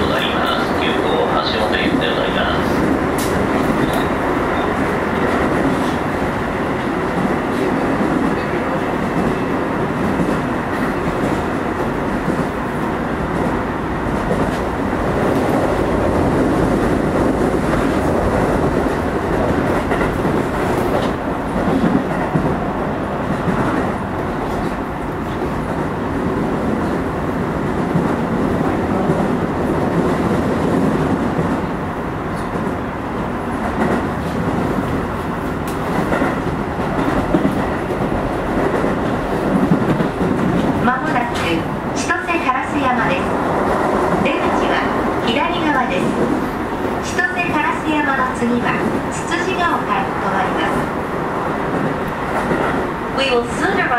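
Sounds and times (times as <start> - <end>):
train wheels rolling on rail: 0.0 - 53.9.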